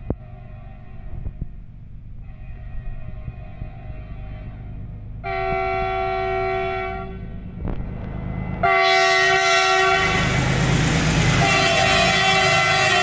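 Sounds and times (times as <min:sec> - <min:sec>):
locomotive horn blasts: 0:00.0 - 0:01.5, 0:02.2 - 0:07.4, 0:08.6 - 0:10.4, 0:11.3 - 0:13.0
train engine and wheels rumbling: 0:00.0 - 0:13.0.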